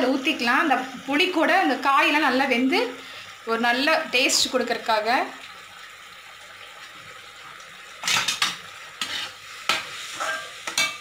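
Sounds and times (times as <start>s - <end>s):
pan sizzling: 0.0s - 11.0s
metal spatula scraping a pan: 8.0s - 11.0s.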